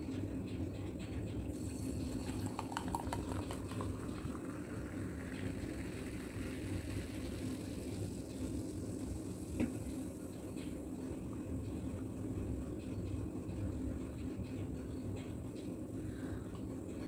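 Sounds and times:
low steady hum: 0:00.0 - 0:17.0
cola pouring and fizzing: 0:01.5 - 0:11.4.

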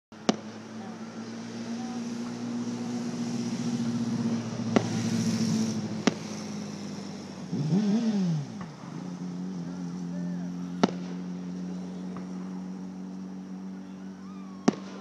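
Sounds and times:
firework bangs: 0:00.2 - 0:07.2, 0:10.7 - 0:12.6, 0:14.5 - 0:15.0.

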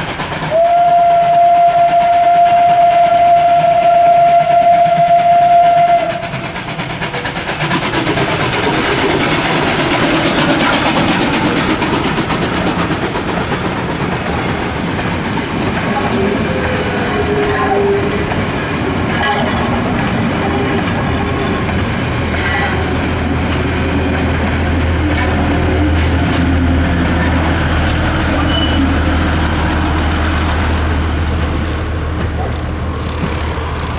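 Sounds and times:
train wheels running on rails: 0:00.0 - 0:33.9
steam locomotive whistle: 0:00.5 - 0:06.8, 0:16.0 - 0:18.3, 0:28.3 - 0:29.2.

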